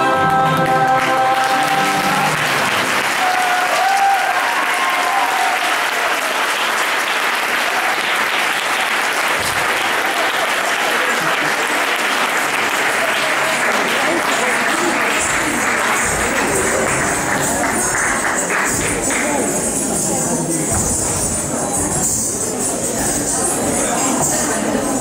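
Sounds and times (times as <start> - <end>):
music: 0.0 - 3.9, 13.4 - 25.0
audience applauding: 0.0 - 20.2.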